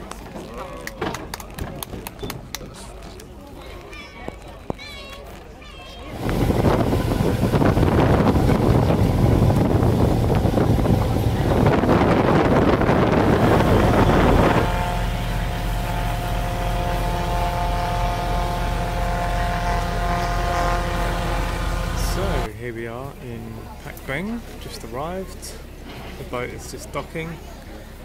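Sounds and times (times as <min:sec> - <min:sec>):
rushing water: 0:06.1 - 0:18.8
wind buffeting microphone: 0:06.1 - 0:22.5
boat engine running: 0:06.1 - 0:28.0.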